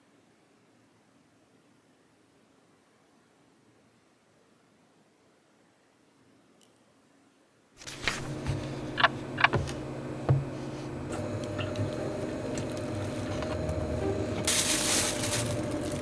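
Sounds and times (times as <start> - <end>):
steady low hum: 7.8 - 16.0.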